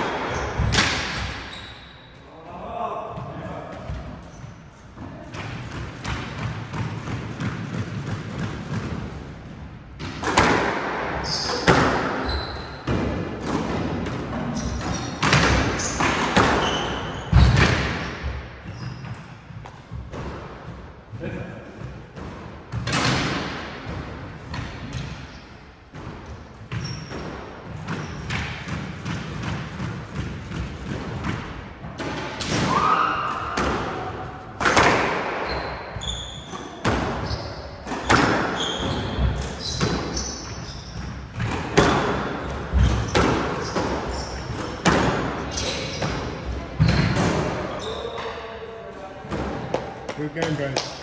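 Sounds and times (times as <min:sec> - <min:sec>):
sneakers squeaking on court: 0:00.0 - 0:02.2, 0:11.2 - 0:13.0, 0:14.3 - 0:20.0, 0:26.2 - 0:29.2, 0:35.3 - 0:48.4
squash ball hitting racquets and walls: 0:00.0 - 0:51.0.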